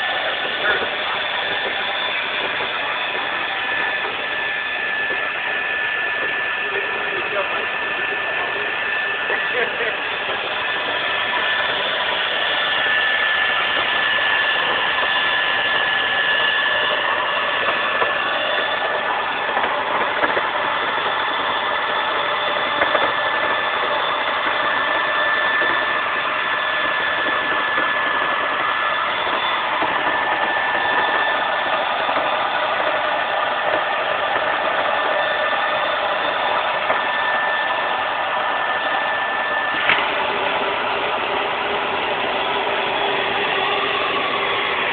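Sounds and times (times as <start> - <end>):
carpet cleaning machine running: 0.0 - 44.9.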